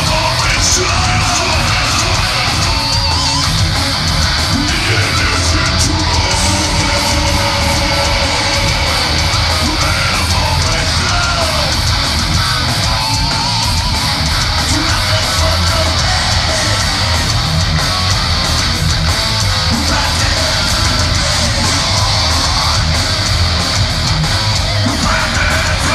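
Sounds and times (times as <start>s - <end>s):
thrash metal band playing live: 0.0s - 25.9s
yelled vocals: 0.0s - 25.9s.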